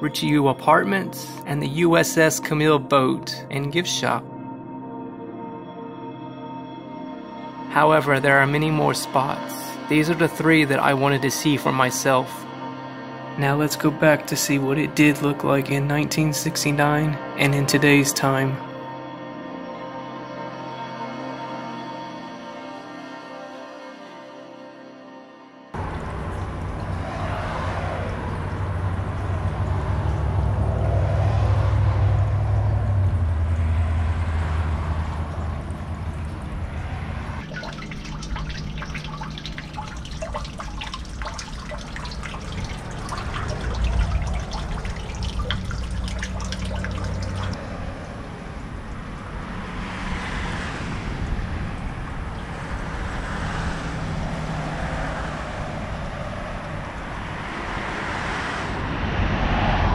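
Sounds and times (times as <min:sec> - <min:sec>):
outdoor wash: 0:07.9 - 0:12.0, 0:25.8 - 0:59.9
low hum: 0:25.8 - 0:50.2
water dripping into drain grate: 0:37.4 - 0:47.6.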